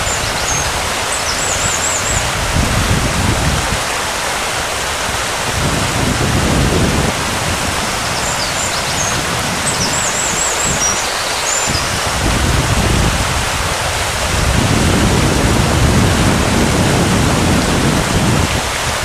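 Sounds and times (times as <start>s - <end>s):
birds chirping: 0.0s - 2.3s, 7.8s - 12.1s
wind buffeting microphone: 0.0s - 3.9s, 5.1s - 19.0s
sea surf rushing: 0.0s - 19.0s.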